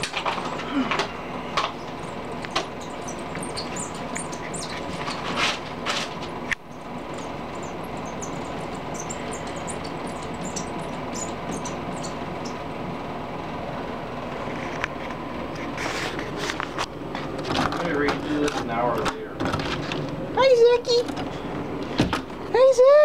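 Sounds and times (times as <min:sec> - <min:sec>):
cat paws scrabbling on glass: 0:01.6 - 0:12.6.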